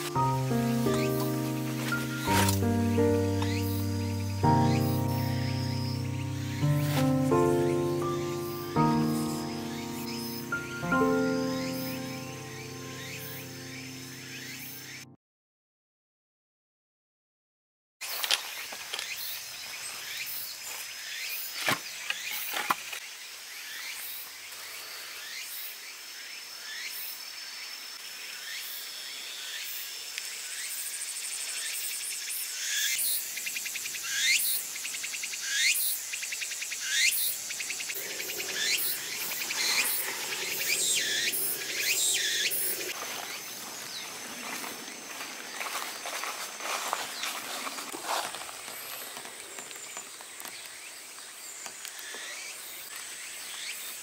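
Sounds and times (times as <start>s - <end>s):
insect chirps rising in pitch: 0.0s - 15.0s, 32.8s - 47.8s
insects droning: 0.0s - 15.0s, 18.0s - 54.0s.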